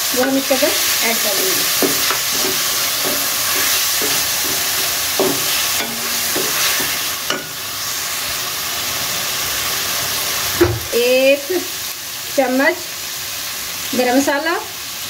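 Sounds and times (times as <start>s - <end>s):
food sizzling in hot fat: 0.0s - 15.0s
wooden spatula scraping a pot: 0.2s - 8.0s.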